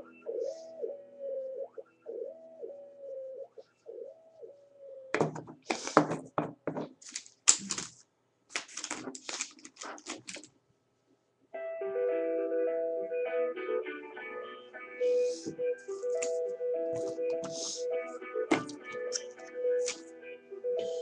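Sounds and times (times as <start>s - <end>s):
music with sustained keyboard notes: 0.0s - 5.1s, 11.5s - 21.0s.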